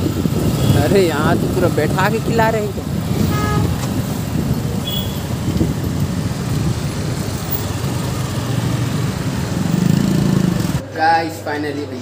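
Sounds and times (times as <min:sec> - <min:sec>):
motorcycle engine and road noise: 0:00.0 - 0:10.8
wind buffeting microphone: 0:00.0 - 0:10.8.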